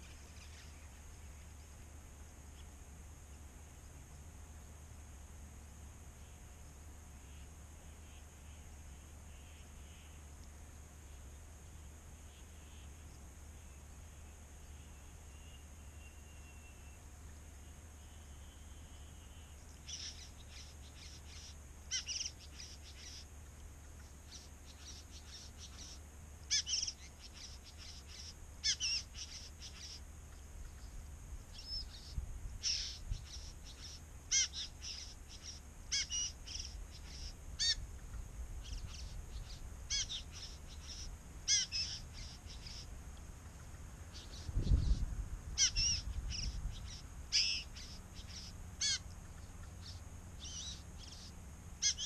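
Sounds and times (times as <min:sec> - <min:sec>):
bird harsh buzzy calls: 0:06.0 - 0:10.4, 0:11.0 - 0:52.0.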